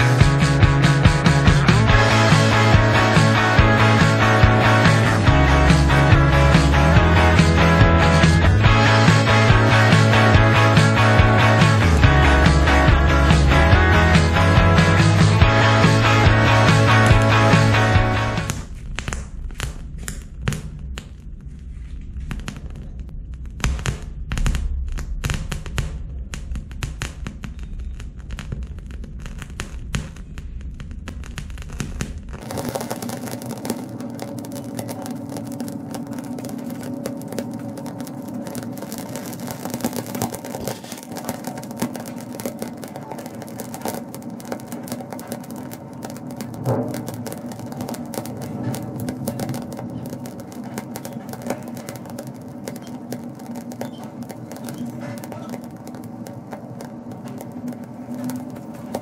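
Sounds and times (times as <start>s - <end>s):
fire crackling and popping: 0.0s - 59.0s
low rumble: 12.9s - 40.6s
steady hum: 29.1s - 59.0s.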